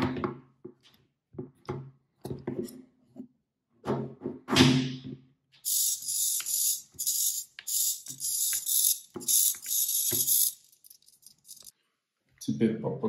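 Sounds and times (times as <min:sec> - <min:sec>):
servo motors whirring: 0:05.7 - 0:11.7.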